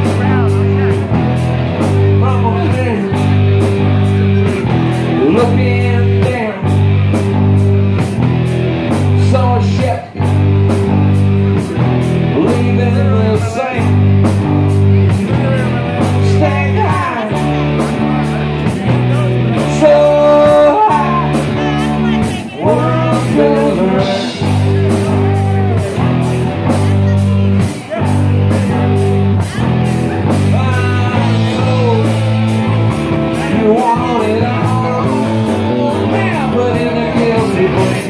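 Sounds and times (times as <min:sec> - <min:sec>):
blues rock band playing: 0:00.0 - 0:38.0
lead vocal singing: 0:05.1 - 0:06.8, 0:15.1 - 0:26.2, 0:30.2 - 0:38.0.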